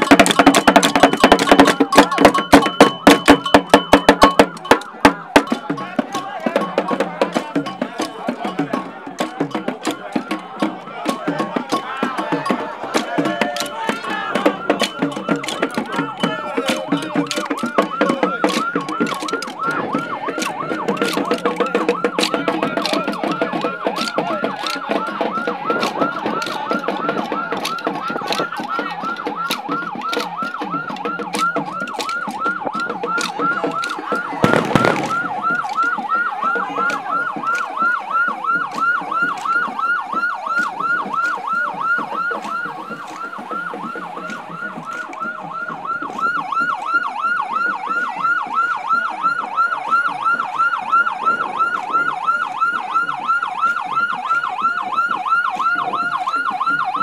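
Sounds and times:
vehicle siren yelping: 0.0s - 57.0s
loud thump: 34.4s - 35.5s.

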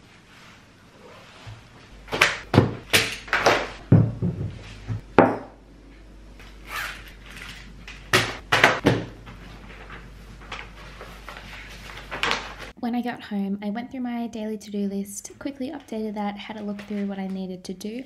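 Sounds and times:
objects set down on wooden table: 3.3s - 5.6s.

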